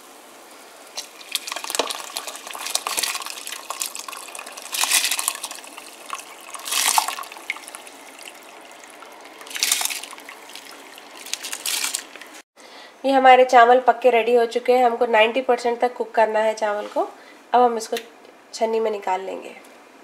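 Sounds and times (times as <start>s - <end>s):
water bubbling at a boil: 0.9s - 12.4s
rice poured into water: 1.0s - 12.4s.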